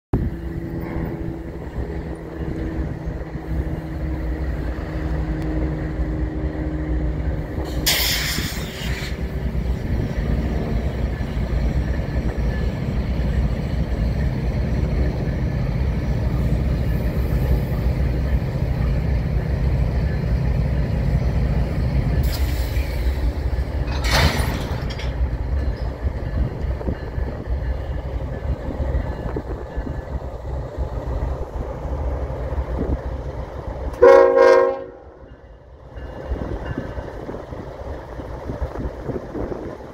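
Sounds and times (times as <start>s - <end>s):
diesel locomotives rumbling: 0.1s - 39.9s
compressed air hissing: 7.7s - 9.2s.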